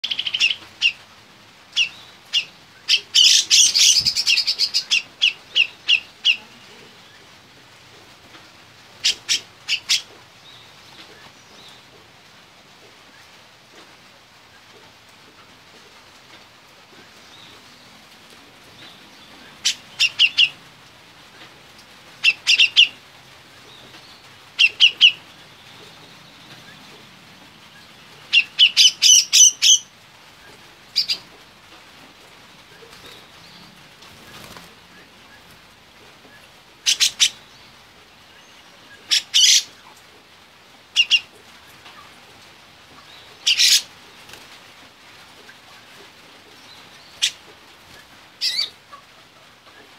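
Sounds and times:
bird calling: 1.7 - 7.3, 9.0 - 11.8, 18.8 - 20.6, 22.2 - 23.0, 23.6 - 31.4, 36.2 - 40.0, 40.9 - 42.1, 43.0 - 43.9, 46.6 - 49.9.

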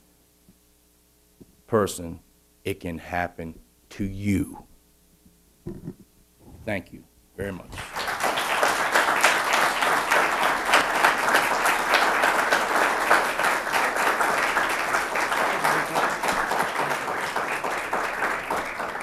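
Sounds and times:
audience applauding: 7.7 - 19.0.

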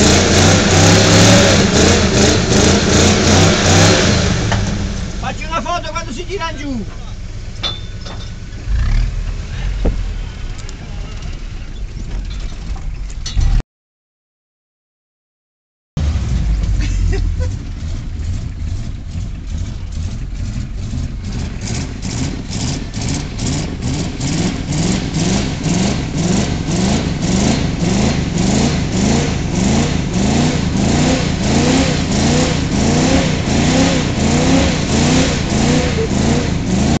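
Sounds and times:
car engine revving: 0.0 - 7.6, 8.5 - 11.8, 16.0 - 37.0.

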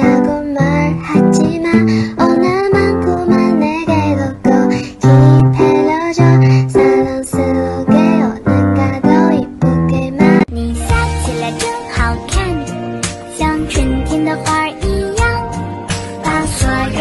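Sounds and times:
person singing: 0.0 - 17.0
song with beat and keyboard: 9.1 - 17.0.

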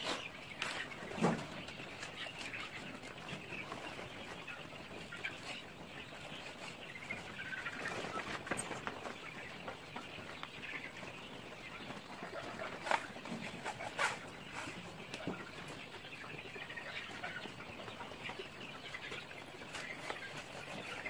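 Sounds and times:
chickens clucking: 0.0 - 21.0.

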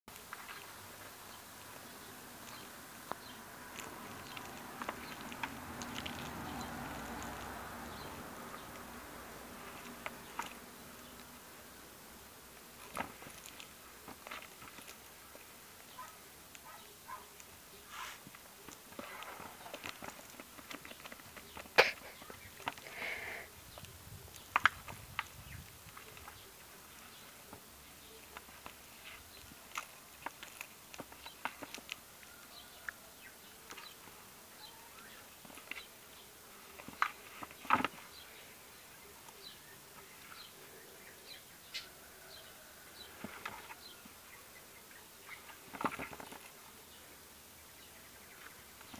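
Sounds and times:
claws scraping on plastic: 2.4 - 8.9, 12.7 - 32.1.

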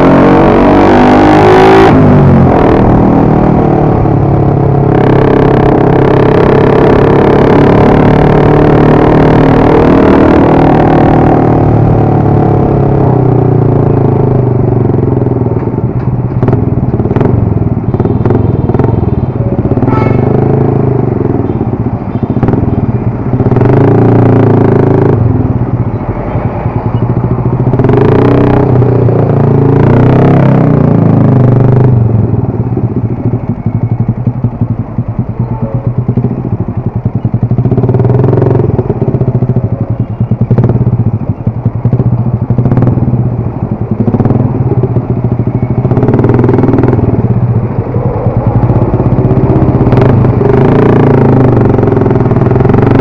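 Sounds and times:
motorcycle engine running: 0.0 - 53.0
rushes of noise: 44.0 - 53.0.

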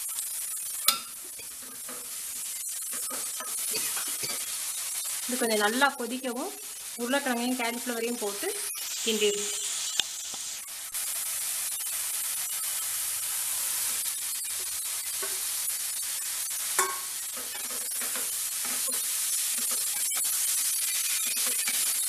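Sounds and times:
masala sizzling in a pan: 0.0 - 22.0
spatula scraping pan: 0.8 - 4.6.

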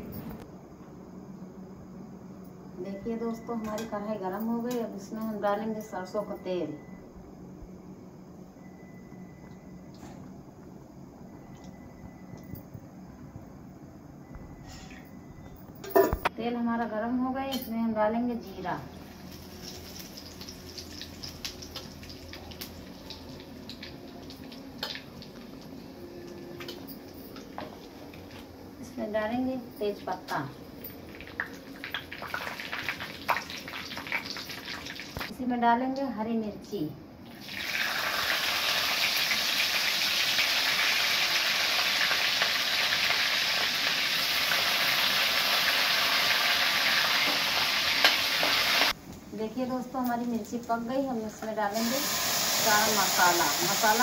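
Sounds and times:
seeds sizzling in hot oil: 18.9 - 25.8, 31.1 - 35.3, 37.3 - 49.0, 50.4 - 54.0.

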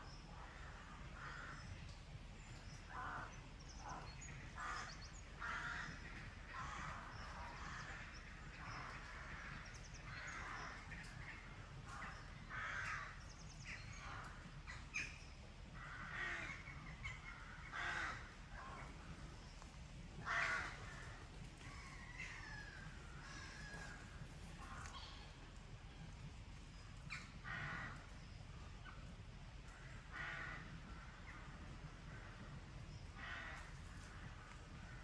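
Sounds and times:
crows cawing: 0.5 - 1.7, 2.9 - 15.0, 15.8 - 18.9, 20.2 - 24.0, 27.1 - 28.1, 29.7 - 31.4, 33.2 - 35.0.

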